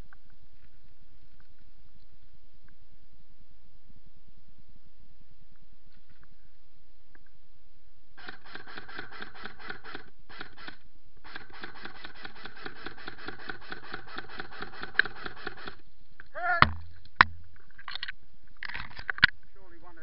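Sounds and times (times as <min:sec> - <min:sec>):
airsoft gun full-auto bursts: 0:08.2 - 0:15.8
sharp cracks: 0:08.2 - 0:19.4
person crying out: 0:16.3 - 0:16.7.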